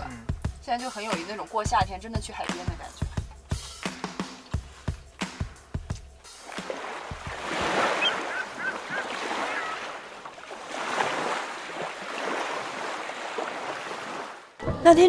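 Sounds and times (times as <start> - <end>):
waves washing onto shore: 6.3 - 14.6.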